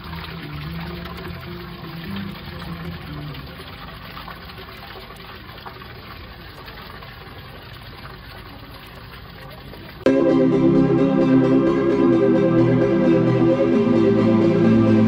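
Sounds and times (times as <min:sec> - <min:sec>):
water splashing into a pool: 0:00.0 - 0:10.1
loud music: 0:10.1 - 0:15.0.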